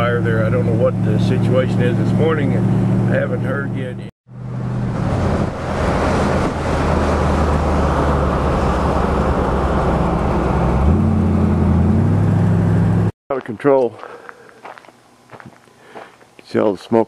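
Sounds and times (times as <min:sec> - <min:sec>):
car engine running: 0:00.0 - 0:13.1.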